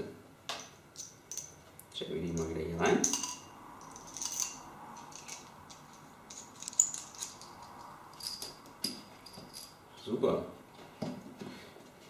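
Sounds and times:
screwdriver bits clicking and rattling: 2.3 - 9.7.

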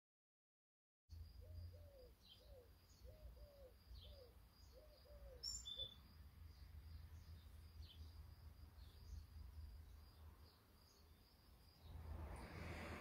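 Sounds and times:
thin high bird chirps: 2.0 - 6.0
low rumble: 11.9 - 13.0.

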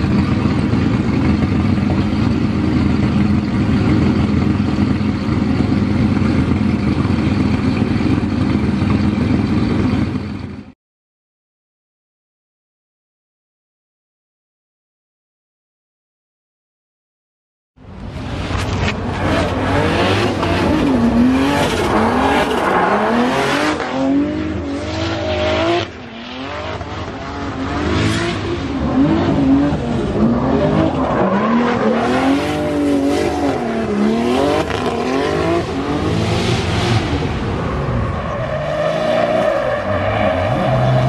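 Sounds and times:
car engine revving: 18.0 - 41.0
tyres spinning and screeching: 37.0 - 41.0.

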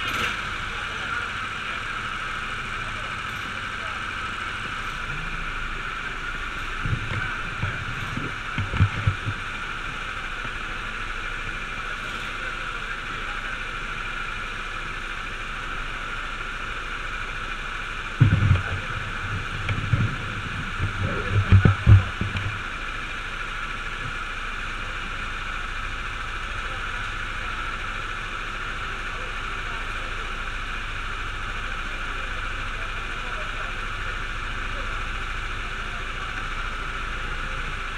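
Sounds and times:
go-kart engines idling: 0.0 - 37.9
low rumbling thuds on microphone: 6.8 - 9.5, 18.2 - 22.8.

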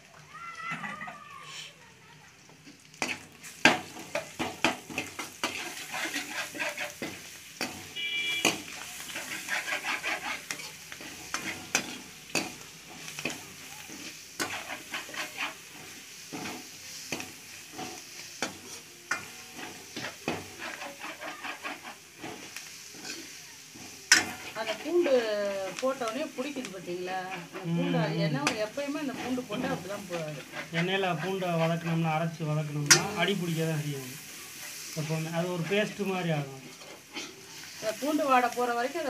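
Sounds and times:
frying in oil sizzle: 0.0 - 39.0
ladle scraping metal pan: 3.0 - 25.9, 27.2 - 32.1.

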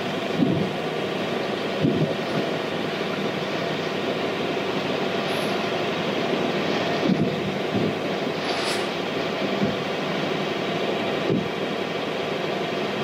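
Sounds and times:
low drone: 2.2 - 11.3
sea noise: 5.0 - 9.9.

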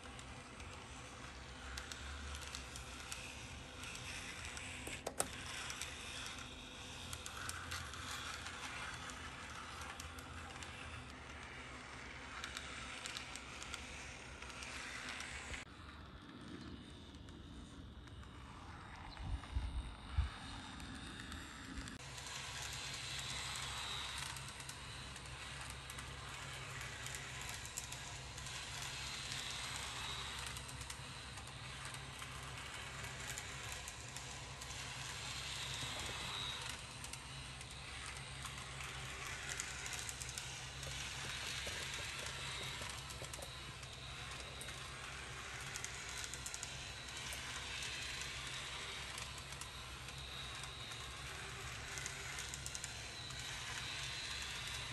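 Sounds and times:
model tram whirring: 0.0 - 54.9.

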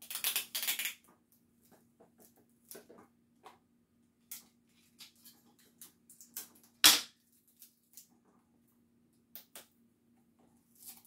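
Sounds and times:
sticky tape clicks and rustles: 0.0 - 1.0.

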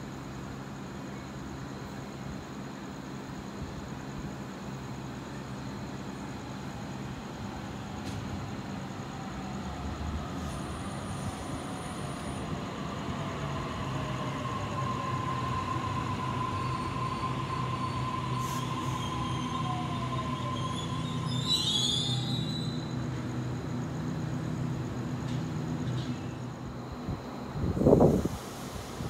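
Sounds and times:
electric train rumble and whine: 0.0 - 29.0
train brake squeal: 14.2 - 23.1.

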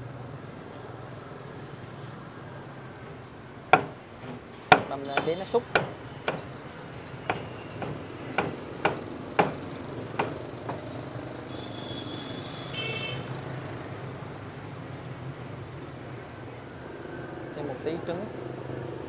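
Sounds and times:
street traffic hum: 0.0 - 19.0
cleaver chopping meat on wood: 3.8 - 6.5, 7.3 - 11.0.

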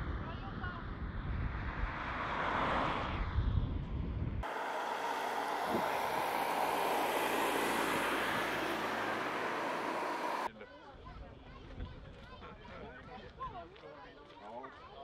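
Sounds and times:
car passing at speed: 1.5 - 3.4, 4.4 - 10.5
wind buffeting microphone: 3.0 - 10.5.

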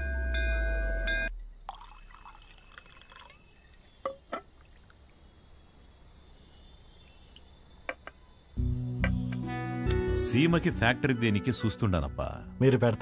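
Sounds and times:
liquor pouring into glass: 1.6 - 4.0.

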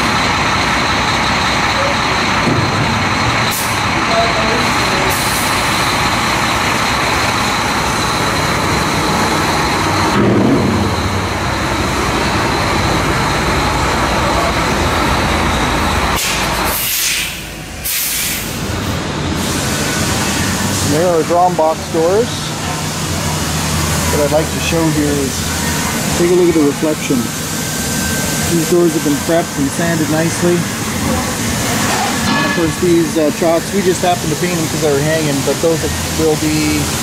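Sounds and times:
high whine: 0.0 - 37.0
workshop machinery noise: 0.0 - 37.0
short hisses: 16.2 - 18.6.

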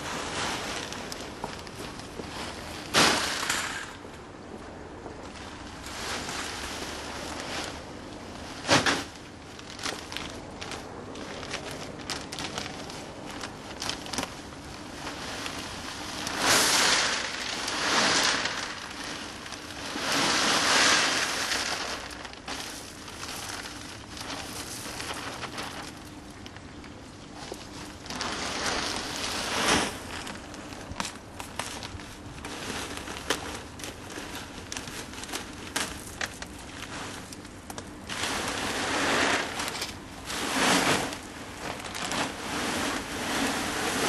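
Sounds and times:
bags rustling: 0.0 - 4.2, 5.0 - 44.0
clay pebbles pouring: 9.6 - 25.9, 38.0 - 44.0.

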